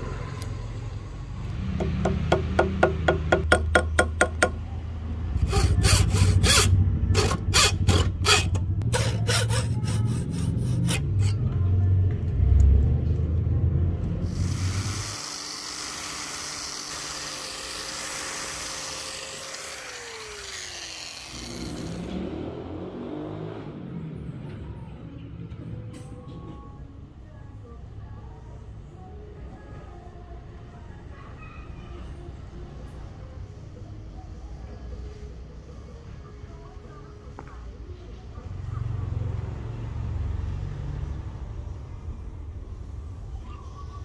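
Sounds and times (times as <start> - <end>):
sharp strikes on wood: 1.8 - 4.6.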